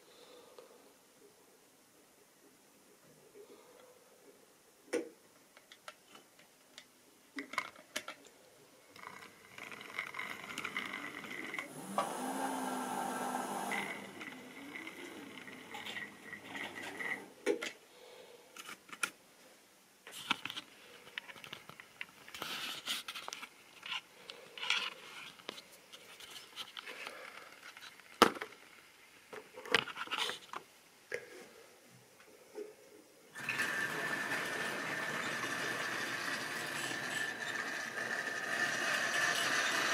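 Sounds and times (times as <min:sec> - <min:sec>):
model trains clicking when handled: 0:09.0 - 0:11.7, 0:33.4 - 0:39.9
model train motor whining: 0:09.0 - 0:17.4, 0:33.4 - 0:39.9
wheels rattling on rail: 0:33.4 - 0:39.9.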